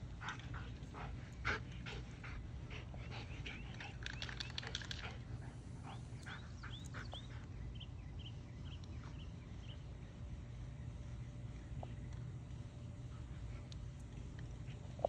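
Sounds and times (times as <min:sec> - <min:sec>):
dog panting: 0:00.0 - 0:07.6.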